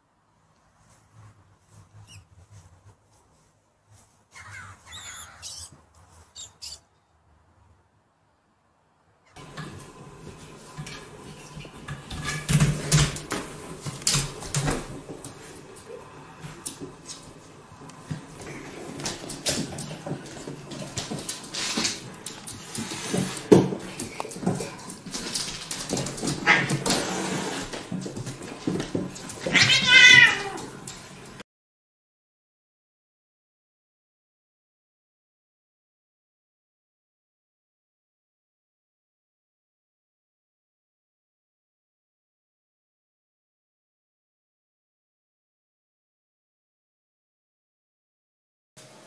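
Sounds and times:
pet animal crying out: 4.4 - 5.7, 6.4 - 6.8, 29.5 - 30.6
cats scrambling in hammock chair: 9.4 - 31.4
knocks and scuffles of animals playing: 9.4 - 31.4.

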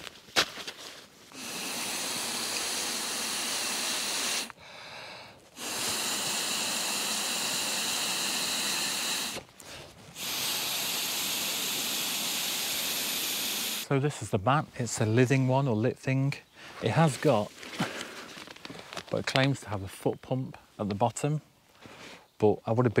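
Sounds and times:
person blowing air into mat valve: 1.3 - 13.9.

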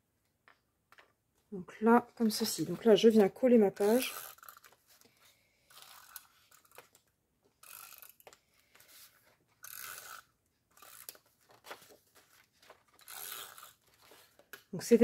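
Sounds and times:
paper handling: 11.2 - 13.1, 13.8 - 14.7.

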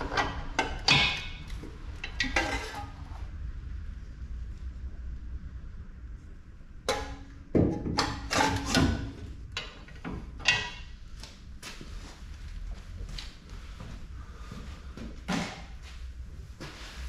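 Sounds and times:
metallic clanks and knocks: 0.0 - 3.0, 6.9 - 10.9.

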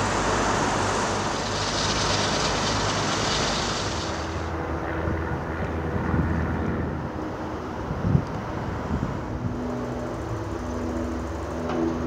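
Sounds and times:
diesel engine humming: 0.0 - 4.7
broad rushing noise: 0.0 - 10.4.

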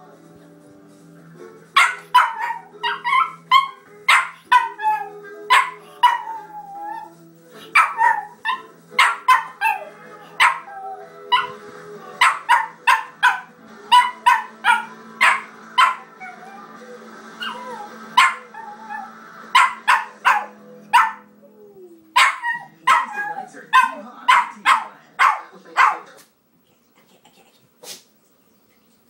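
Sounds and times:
faint television theme music: 0.0 - 29.0
small dog yapping: 1.8 - 7.1, 22.2 - 26.0.

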